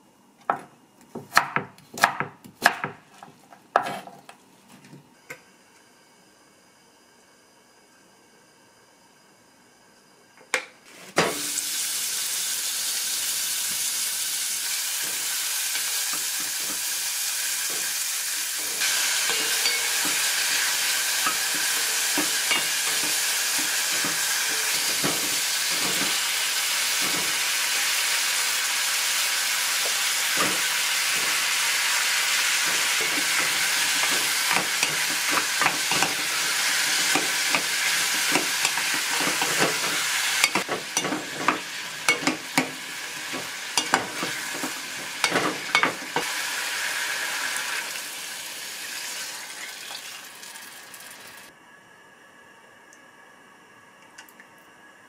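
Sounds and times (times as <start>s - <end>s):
food sizzling in a pan: 10.9s - 51.5s.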